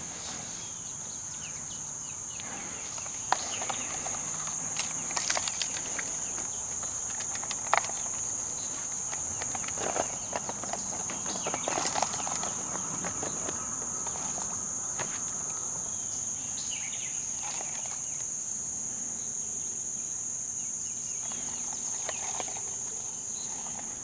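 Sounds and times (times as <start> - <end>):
insects droning: 0.0 - 24.0
handling clicks and rustles: 2.3 - 15.7, 17.3 - 18.4, 21.2 - 24.0.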